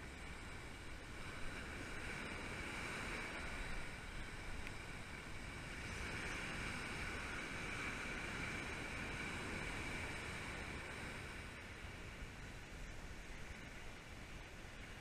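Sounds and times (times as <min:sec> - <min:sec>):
ocean surf breaking: 0:00.0 - 0:13.4.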